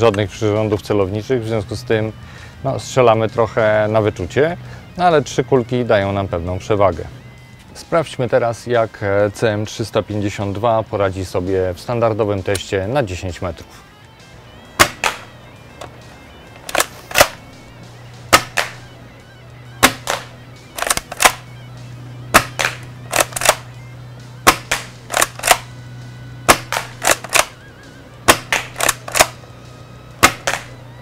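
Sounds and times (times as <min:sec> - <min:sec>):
airsoft shotgun snaps: 0:14.8 - 0:15.9, 0:16.6 - 0:17.4, 0:18.3 - 0:18.9, 0:19.8 - 0:21.4, 0:22.4 - 0:23.7, 0:24.5 - 0:25.7, 0:26.5 - 0:27.6, 0:28.3 - 0:29.4, 0:30.2 - 0:30.8.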